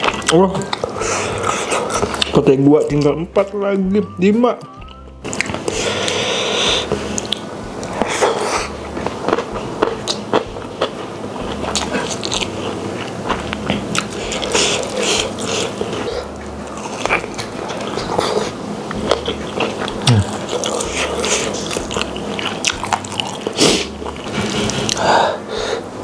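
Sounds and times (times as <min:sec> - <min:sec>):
wet chewing and lip smacking: 0:04.8 - 0:06.2, 0:07.2 - 0:24.3.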